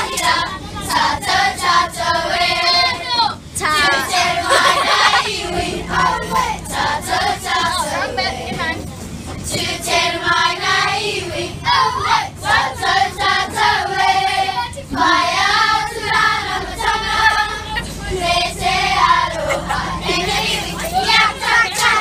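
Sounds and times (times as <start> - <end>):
girls singing in unison: 0.0 - 22.0.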